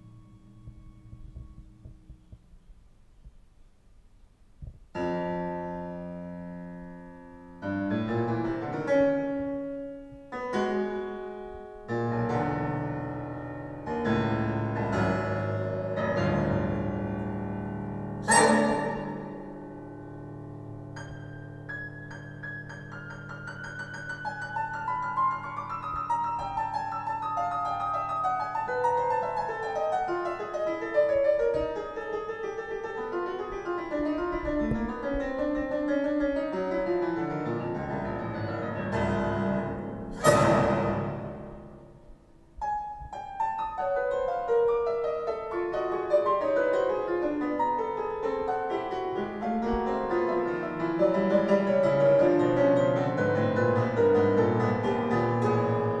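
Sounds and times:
piano-like keyboard music: 5.0s - 56.0s
loud ringing hit: 40.1s - 42.0s.

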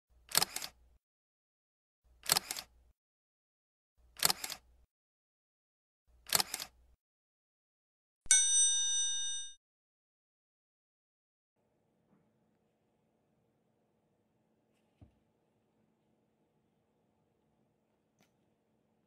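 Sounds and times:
bell-like ding: 8.3s - 9.6s.

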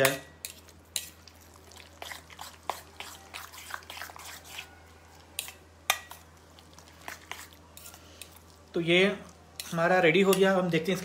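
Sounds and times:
spoon clinking against pan: 5.4s - 6.2s.

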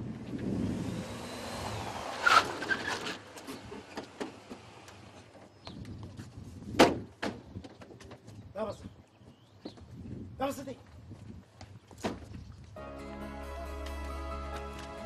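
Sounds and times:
car rolling up and stopping: 0.0s - 5.6s
brake squeal: 2.1s - 4.9s.

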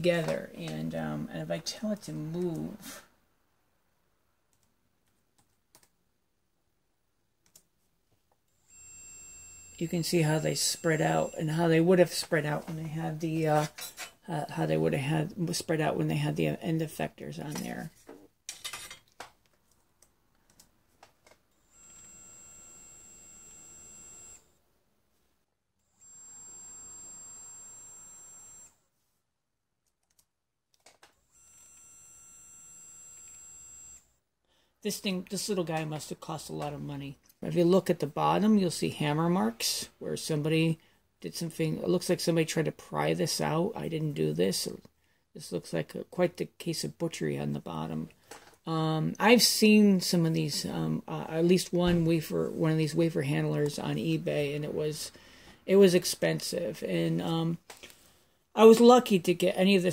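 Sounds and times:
stepper motor whine: 21.7s - 24.5s, 26.0s - 28.8s.

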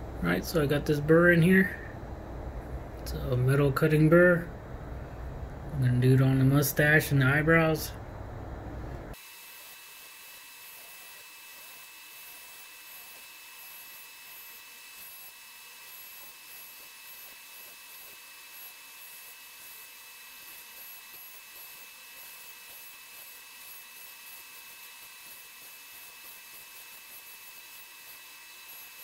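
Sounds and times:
rotary tool grinding wood: 9.1s - 29.0s.

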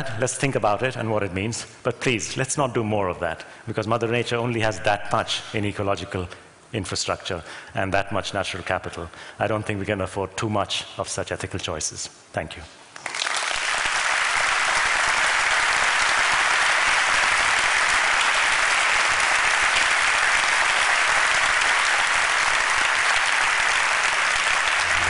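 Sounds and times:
audience applauding: 13.0s - 25.0s.

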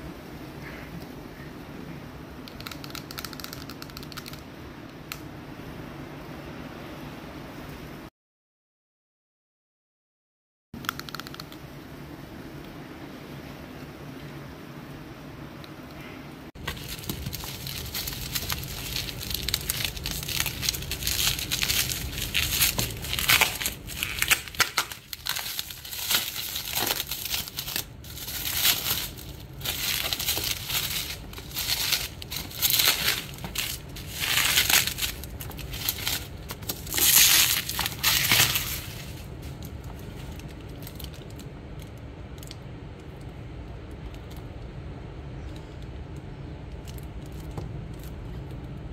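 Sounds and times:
bubble wrap crinkling: 16.6s - 42.5s.

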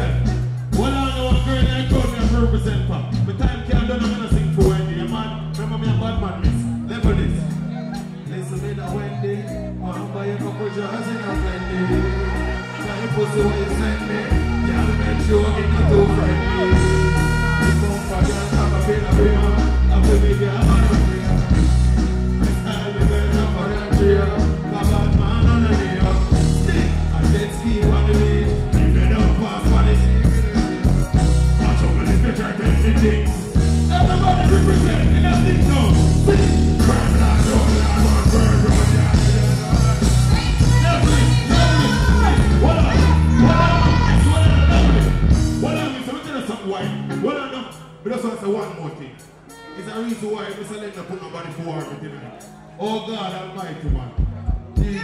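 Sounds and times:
heavy repeating bass line: 0.0s - 9.8s, 11.3s - 46.0s
person rapping vocals: 0.0s - 21.6s, 22.4s - 46.6s
dancehall music over sound system: 0.0s - 55.0s
person talking on microphone: 0.0s - 55.0s.

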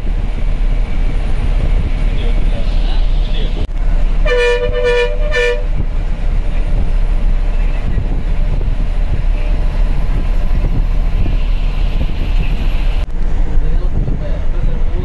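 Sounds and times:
bus engine and road rumble: 0.0s - 15.0s
horn toot: 4.2s - 5.8s.

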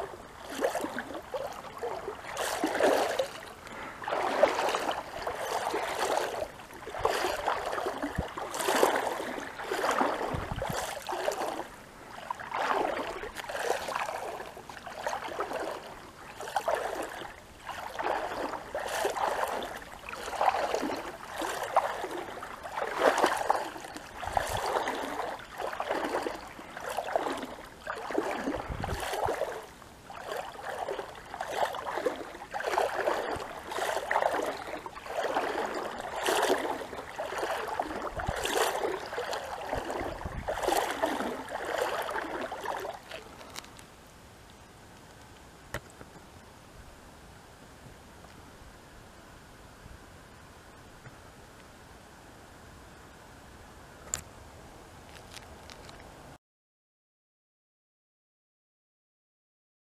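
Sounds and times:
water trickling: 0.0s - 43.7s
paddle swishing through water: 0.0s - 44.0s.

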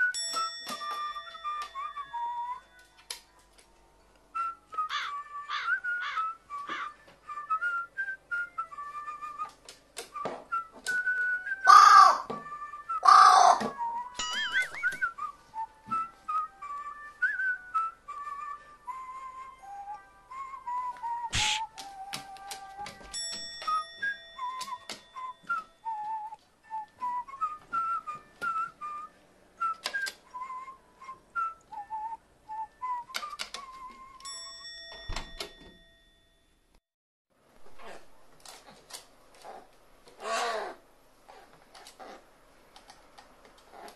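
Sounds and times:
whistled tune: 0.0s - 3.0s, 4.3s - 11.8s, 12.4s - 34.4s
crow cawing harshly: 11.7s - 12.3s, 13.0s - 13.6s, 40.2s - 40.8s.

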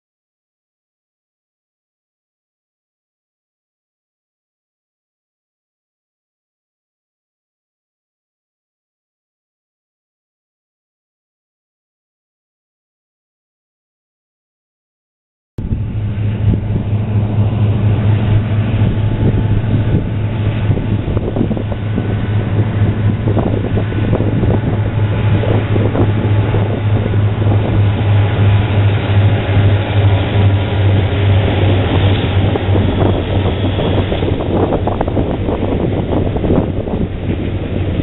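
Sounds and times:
diesel locomotive hum: 15.6s - 38.0s
train cars rumbling on rails: 15.6s - 38.0s
wind buffeting microphone: 15.6s - 38.0s.

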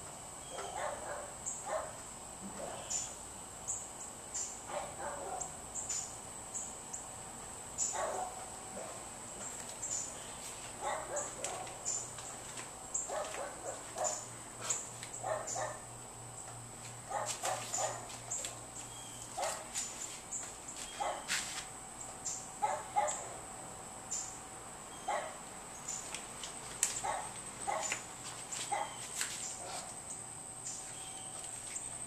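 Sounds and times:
dog barking: 0.5s - 2.0s, 4.7s - 5.6s, 7.9s - 9.0s, 10.8s - 11.8s, 13.1s - 15.9s, 17.1s - 18.1s, 19.4s - 19.7s, 21.0s - 21.3s, 22.6s - 23.4s, 25.1s - 25.4s, 27.0s - 28.0s, 28.7s - 29.0s, 29.6s - 29.9s.

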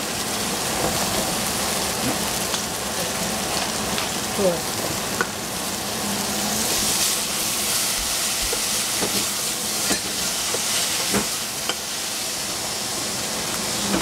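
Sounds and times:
vegetables sizzling in a pan: 0.0s - 14.0s.

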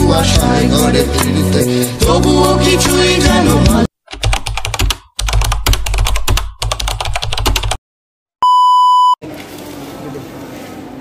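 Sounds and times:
test-tone beep: 8.4s - 9.2s.

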